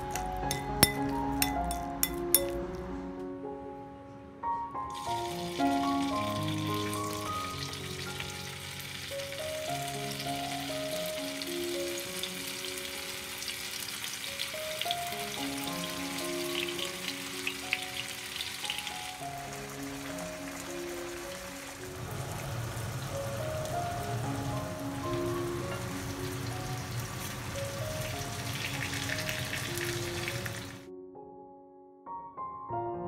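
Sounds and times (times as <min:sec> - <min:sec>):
melodic background music: 0:00.0 - 0:33.0
tofu sizzling in hot oil: 0:04.9 - 0:30.8.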